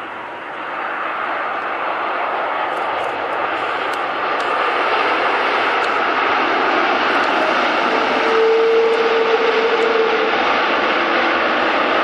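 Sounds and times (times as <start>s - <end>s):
jet engine noise: 0.0s - 12.0s
steady whine: 0.0s - 12.0s.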